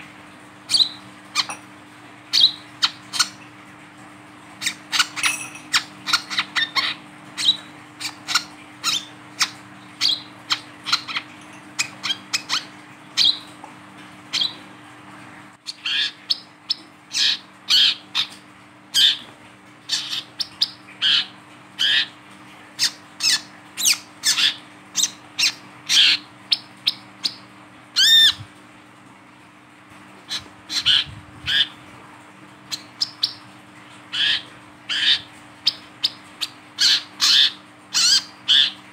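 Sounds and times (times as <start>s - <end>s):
bird chipping calls: 4.6s - 13.6s, 19.9s - 22.1s, 34.1s - 38.8s.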